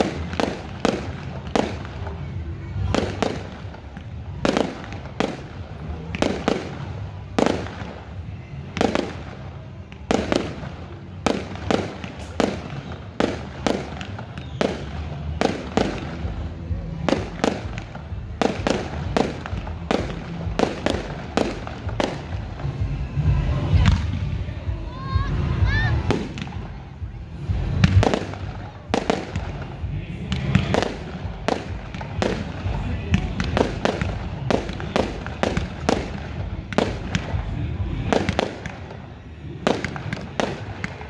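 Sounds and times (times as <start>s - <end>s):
fireworks bangs: 0.0s - 23.1s, 26.0s - 41.0s
low rumble: 15.3s - 34.6s.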